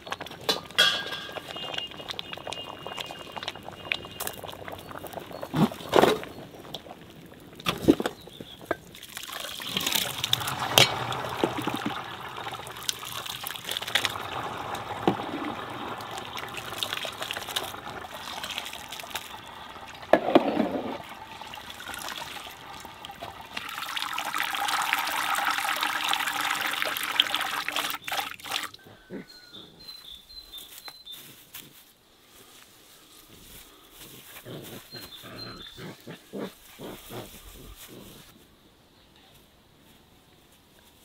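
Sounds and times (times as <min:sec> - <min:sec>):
hot water splashing and trickling: 0:00.0 - 0:28.8
water pouring into a colander: 0:08.9 - 0:28.8.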